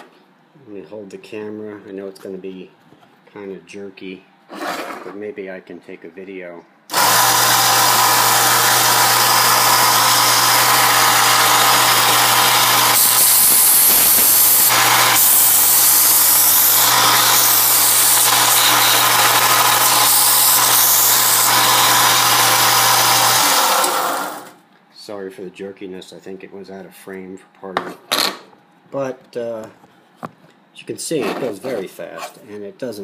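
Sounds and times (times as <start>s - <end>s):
metal grinding against sanding belt: 4.5s - 5.2s, 6.9s - 24.1s
belt sander motor hum: 6.9s - 24.6s.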